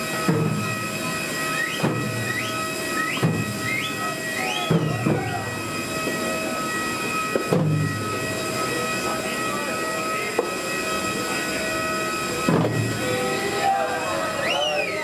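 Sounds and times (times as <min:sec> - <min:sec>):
high-pitched machine whine: 0:00.0 - 0:15.0
drummers shouting: 0:03.3 - 0:05.7, 0:12.5 - 0:15.0
heavy drum beats: 0:04.6 - 0:05.8, 0:12.4 - 0:13.6.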